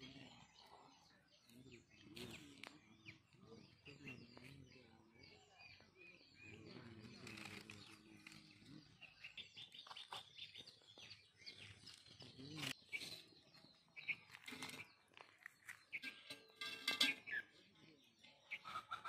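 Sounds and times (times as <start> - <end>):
faint distant voice: 0.0 - 9.5, 11.6 - 13.7, 16.6 - 19.0
birds chirping: 0.0 - 19.0.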